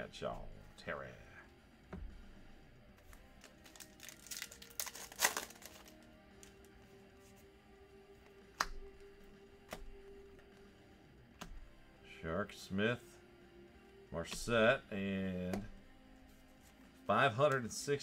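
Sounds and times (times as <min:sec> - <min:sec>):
quiet background music: 0:00.0 - 0:18.0
plastic wrapper crinkling: 0:03.3 - 0:06.5.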